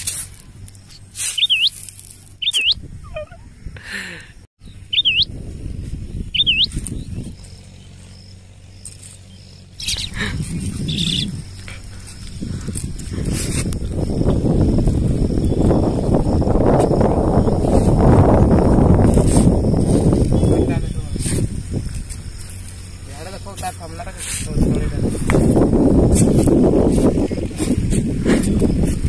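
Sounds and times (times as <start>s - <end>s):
high bird-like chirps: 0.8s - 3.7s, 4.6s - 12.3s, 19.3s - 21.6s.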